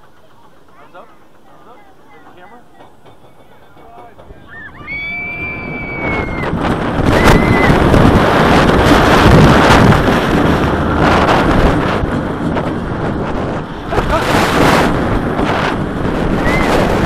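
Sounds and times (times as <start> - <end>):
roller coaster train on track: 0.0 - 17.0
people screaming: 3.3 - 8.0, 16.4 - 16.9
wind rushing on microphone: 3.9 - 17.0.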